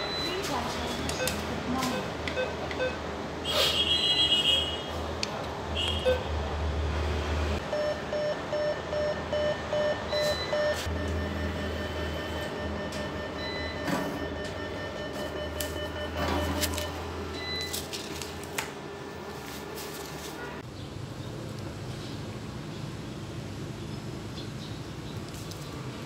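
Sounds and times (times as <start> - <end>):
short even beeps: 7.7 - 17.8
cash machine mechanism whirring: 9.7 - 18.6.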